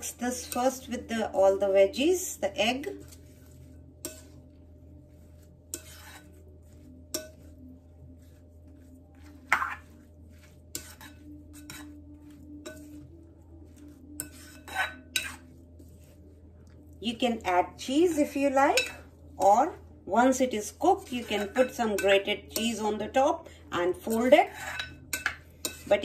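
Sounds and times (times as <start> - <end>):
spoon clinking against bowl: 7.1 - 7.5, 18.7 - 19.1, 21.3 - 22.8, 24.5 - 25.9.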